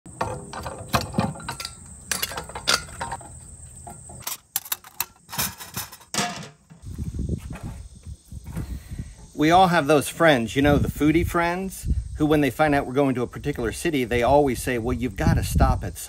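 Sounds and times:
metal parts clicking and clanking: 0.1 - 6.9
insect trill: 0.1 - 16.0.

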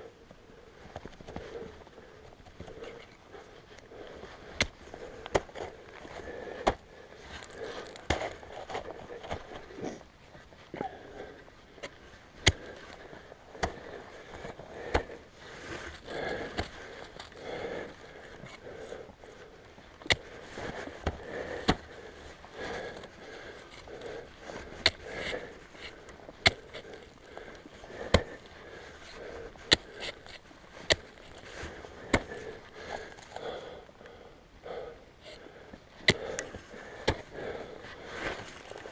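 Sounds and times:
climber breathing: 0.0 - 38.9
ice axe and boots crunching snow: 3.7 - 11.0, 12.4 - 19.4, 20.0 - 33.6, 36.0 - 38.9.

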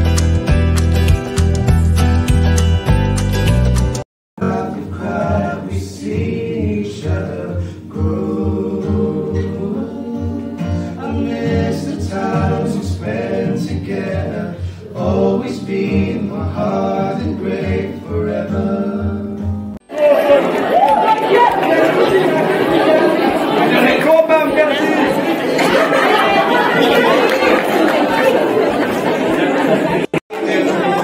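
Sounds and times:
strummed acoustic guitar: 0.0 - 19.8.

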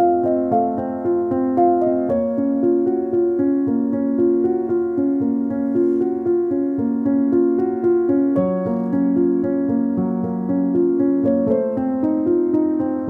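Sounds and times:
gentle piano music: 0.0 - 13.0.

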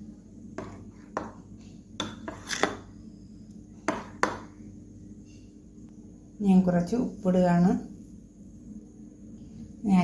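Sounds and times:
spoon stirring batter: 0.4 - 2.9.

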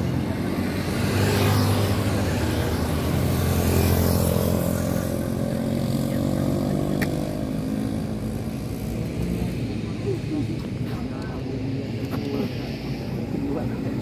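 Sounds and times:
motorcycle passing at speed: 0.0 - 9.9.

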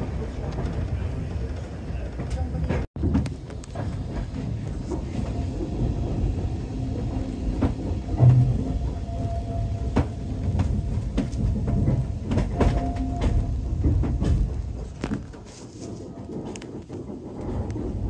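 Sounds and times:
train rumbling on track: 0.0 - 18.0
wheels clicking over rail joints: 0.2 - 18.0.

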